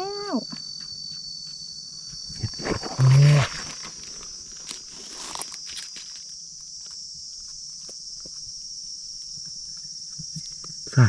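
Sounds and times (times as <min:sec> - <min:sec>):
forest insects chorus: 0:00.0 - 0:11.0
crunching in dry leaves: 0:02.4 - 0:07.0.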